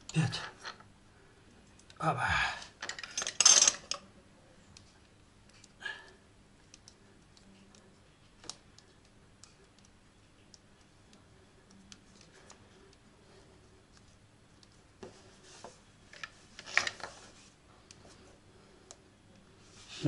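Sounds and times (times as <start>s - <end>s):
soft rustle: 10.4s - 20.0s.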